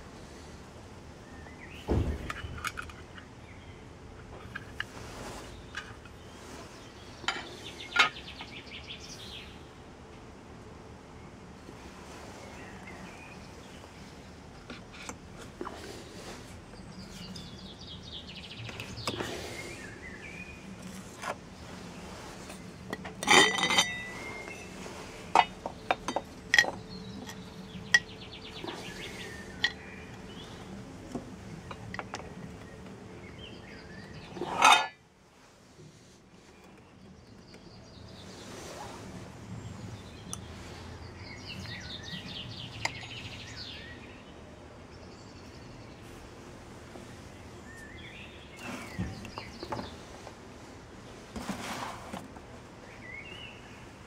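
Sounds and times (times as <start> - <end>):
faint birds chirping: 0.0 - 54.0
resin pieces and tubes clinking: 22.9 - 28.2.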